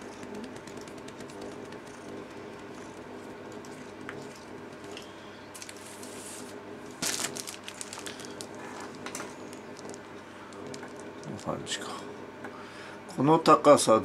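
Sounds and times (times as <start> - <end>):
low steady hum: 0.0 - 14.0
plastic sleeve rustling: 4.3 - 11.7.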